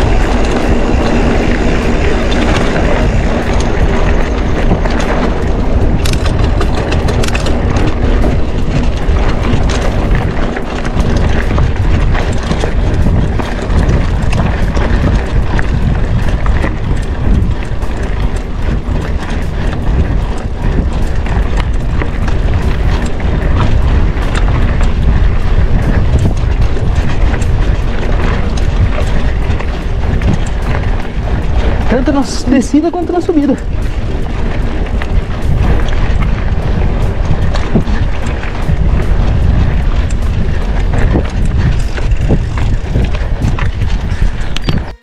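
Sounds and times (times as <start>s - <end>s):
bike rattling over dirt road: 0.0s - 45.0s
tyre noise: 0.0s - 45.0s
wind buffeting microphone: 0.0s - 45.0s.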